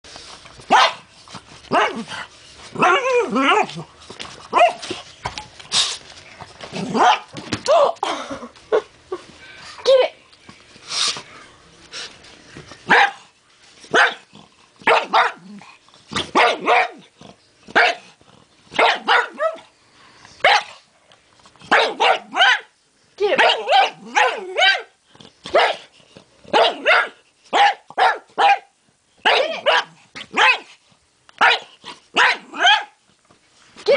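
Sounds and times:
dog barking: 0.7 - 1.1, 7.0 - 7.3, 12.9 - 13.2, 13.9 - 14.2, 14.8 - 15.4, 16.3 - 17.0, 17.8 - 18.0, 18.8 - 19.6, 20.4 - 20.8, 21.7 - 22.7, 23.4 - 25.9, 26.5 - 30.7, 31.4 - 33.0
dog barking sharply: 18.8 - 19.6, 26.5 - 28.7, 31.4 - 32.9.

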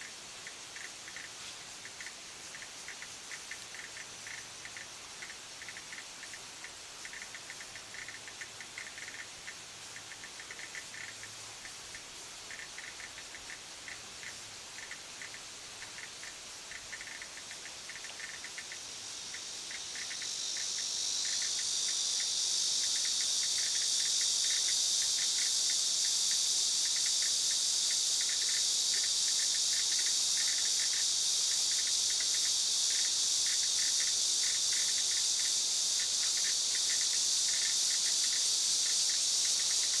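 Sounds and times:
cicada buzzing: 0.0 - 40.0.

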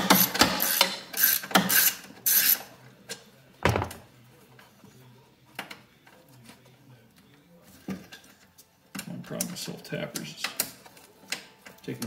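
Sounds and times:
hand ratchet clicking: 0.0 - 2.6.

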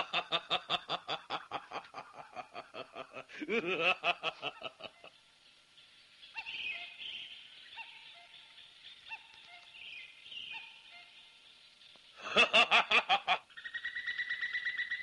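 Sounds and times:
man laughing loudly: 0.0 - 5.1, 12.2 - 13.4
faint bird chirps: 4.4 - 12.4, 13.5 - 15.0
high bird trill: 6.2 - 11.4, 13.5 - 15.0.

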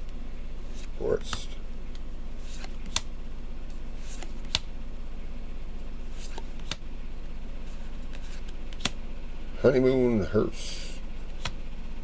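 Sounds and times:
steady low hum: 0.0 - 12.0
trading cards clicking: 2.5 - 3.1, 4.1 - 4.7, 6.2 - 6.8, 8.1 - 9.0.

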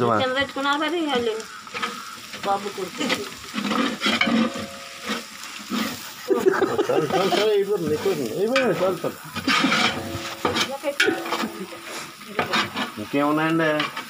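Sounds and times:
oil sizzling: 0.0 - 14.0
metal spoon scraping a pot: 1.7 - 6.0, 7.1 - 13.2.

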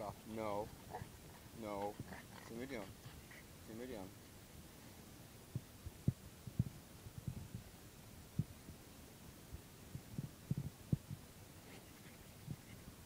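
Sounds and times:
faint low thumps against couch: 5.5 - 7.7.

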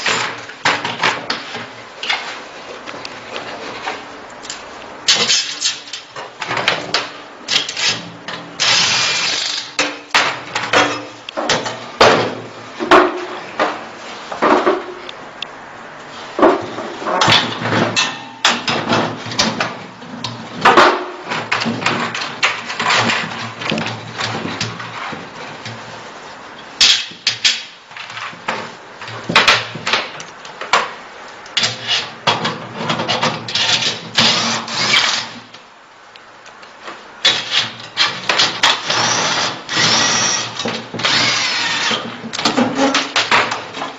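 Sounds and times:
hard parts knocking and clattering: 5.1 - 15.1, 16.4 - 25.8, 26.8 - 31.0, 37.2 - 43.9.

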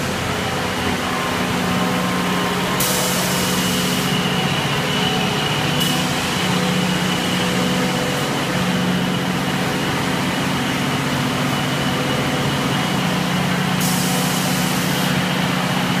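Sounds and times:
machine humming and whining: 0.0 - 16.0
hiss: 2.7 - 4.3, 13.8 - 15.4.

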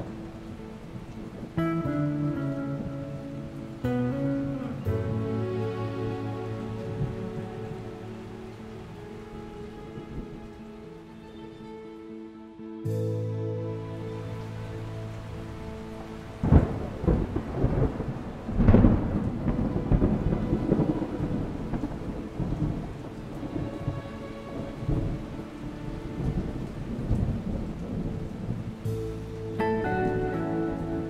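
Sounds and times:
steady rain: 0.0 - 31.0
thunder claps rumbling: 15.0 - 31.0.

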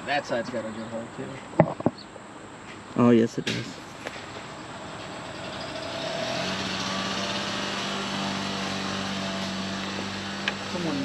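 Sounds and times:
small engine running: 4.2 - 11.0.

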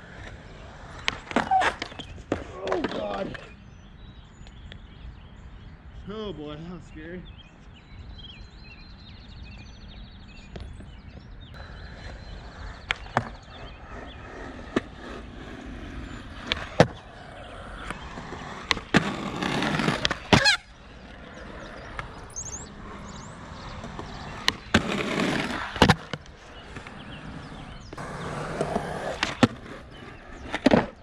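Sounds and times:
skateboard wheels rolling on concrete: 0.0 - 5.6, 7.2 - 31.0
skateboard deck clacking: 11.9 - 31.0.

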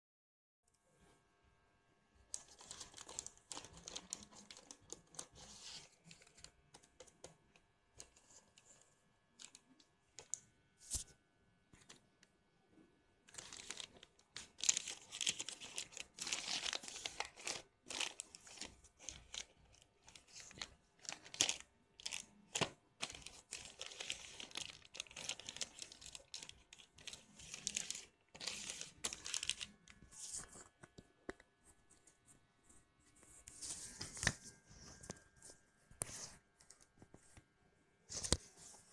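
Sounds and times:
plastic mailer bag crinkling and tearing: 2.3 - 7.0, 13.3 - 30.0.

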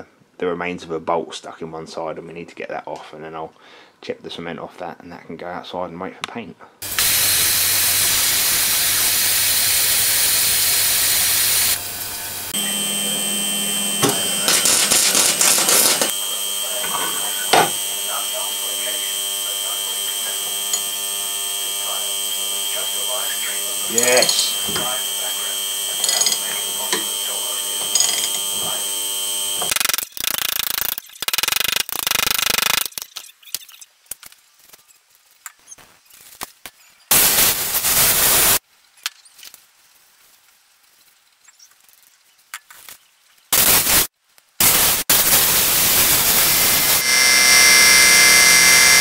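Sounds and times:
compressed air blasts: 6.8 - 11.8
ultrasonic cleaner humming: 6.8 - 29.8, 44.6 - 49.0
ratchet wrench clicking: 26.0 - 26.4, 27.9 - 28.4.

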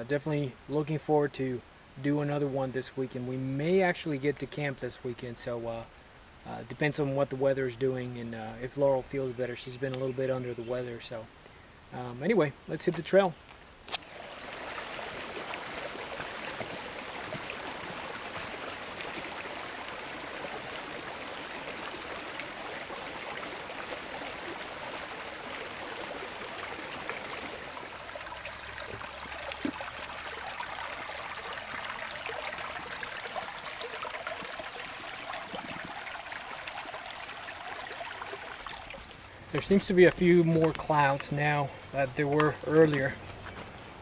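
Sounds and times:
stream water rushing: 13.9 - 44.0.

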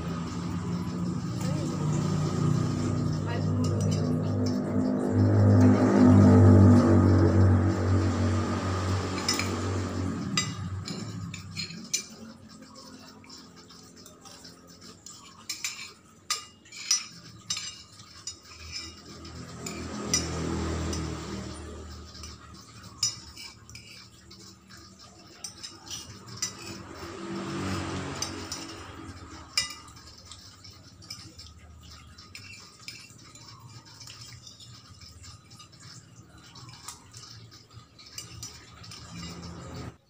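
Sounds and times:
low hum: 0.0 - 11.8
cutlery clinking on ceramic plate: 8.6 - 39.9.

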